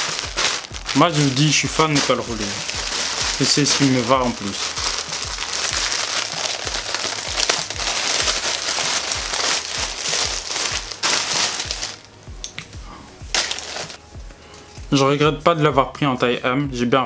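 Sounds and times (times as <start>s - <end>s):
plastic bag crinkling: 0.0s - 12.1s, 13.3s - 14.0s.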